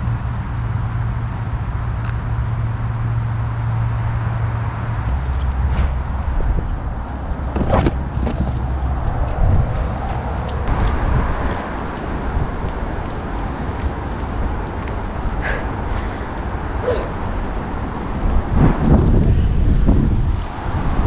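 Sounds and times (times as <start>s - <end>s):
wind buffeting microphone: 3.5s - 21.0s
tent fabric flapping: 5.1s - 10.3s.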